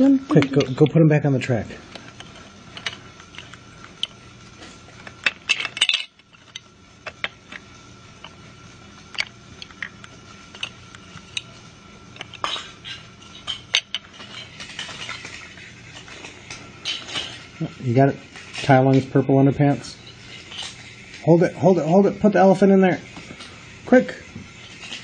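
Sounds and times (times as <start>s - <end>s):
faint hum: 0.0s - 25.0s
toy train pieces clicking: 1.9s - 4.2s, 9.1s - 19.1s, 19.7s - 21.9s, 23.1s - 25.0s.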